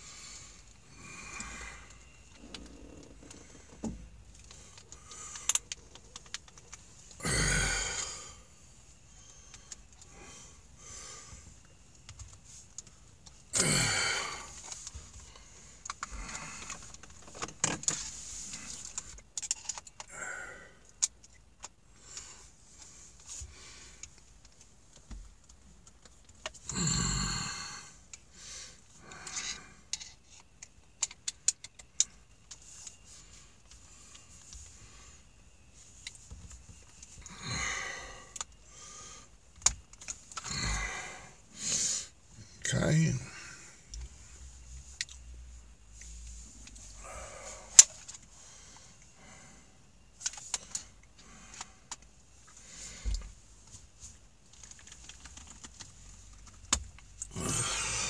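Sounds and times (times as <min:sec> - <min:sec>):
heavy breaths: 0:00.0 - 0:21.1, 0:26.6 - 0:30.2, 0:36.3 - 0:44.7, 0:46.0 - 0:53.6, 0:57.2 - 0:58.0.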